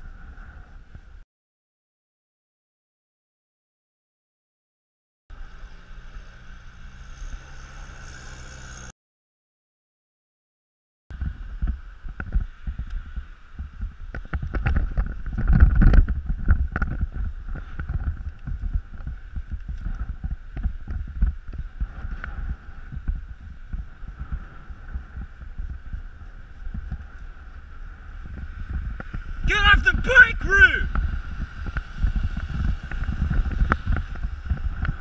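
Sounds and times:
wind buffeting microphone: 0:11.1 - 0:35.0.

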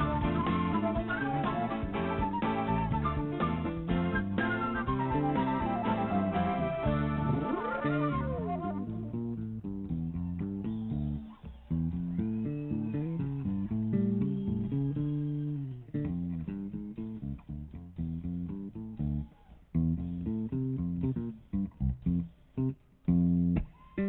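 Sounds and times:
drums: 0:00.0 - 0:08.8
electric bass guitar: 0:00.0 - 0:24.0.

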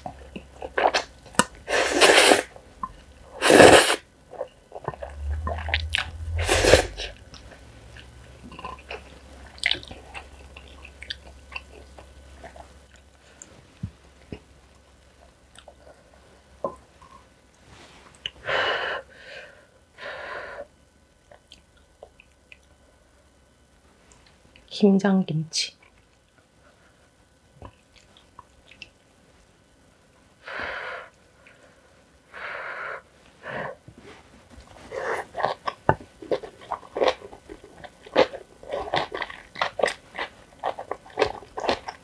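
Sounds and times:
chewing noodles: 0:03.4 - 0:13.5, 0:34.6 - 0:42.0.

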